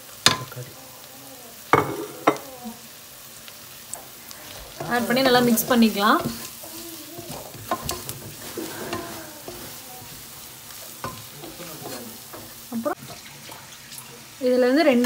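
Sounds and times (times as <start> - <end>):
onions sizzling in oil: 0.0 - 15.0
spatula scraping and knocking pot: 4.6 - 13.3.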